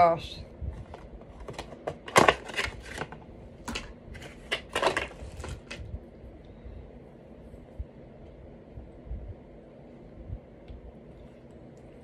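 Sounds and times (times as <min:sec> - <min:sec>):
plastic toy clicks and crinkles: 0:01.4 - 0:05.9.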